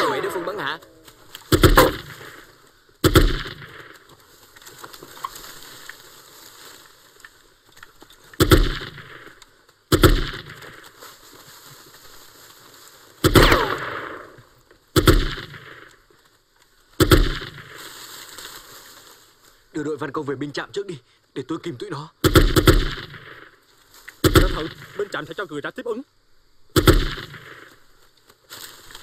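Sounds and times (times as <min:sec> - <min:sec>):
rifle shots echoing: 0:00.0 - 0:04.0, 0:08.4 - 0:10.8, 0:13.2 - 0:15.9, 0:17.0 - 0:17.8, 0:22.2 - 0:23.6, 0:24.2 - 0:25.2, 0:26.8 - 0:27.8
steady hiss: 0:00.0 - 0:29.0.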